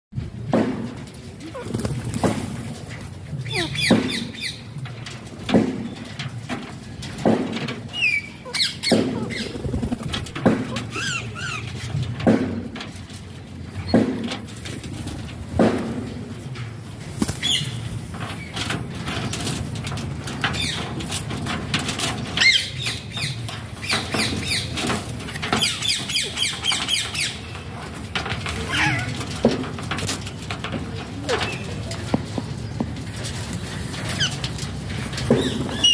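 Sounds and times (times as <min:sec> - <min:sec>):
parakeets squawking and chirping: 0:08.0 - 0:11.7.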